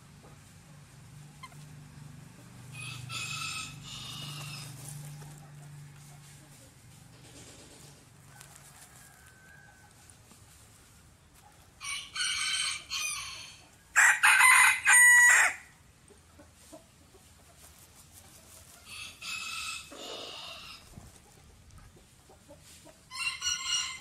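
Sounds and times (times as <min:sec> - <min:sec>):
rooster crowing: 0:02.7 - 0:06.1, 0:08.2 - 0:10.1, 0:11.8 - 0:15.7, 0:18.9 - 0:20.8, 0:23.1 - 0:24.0.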